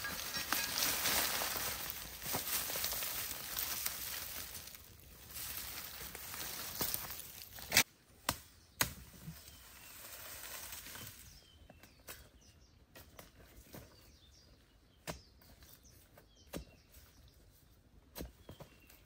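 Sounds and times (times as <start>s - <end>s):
soft rustle: 0.0s - 7.6s.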